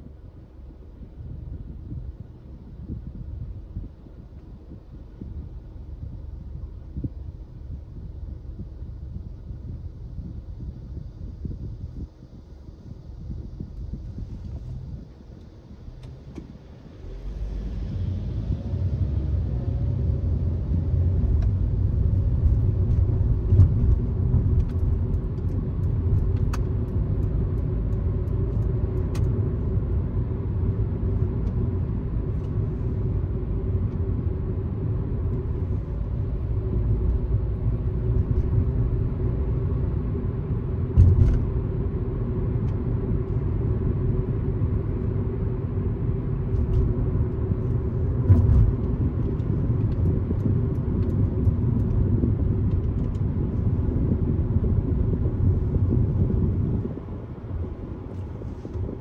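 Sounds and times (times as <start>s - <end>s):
car driving on highway: 0.0s - 59.0s
low thumps: 40.9s - 41.6s.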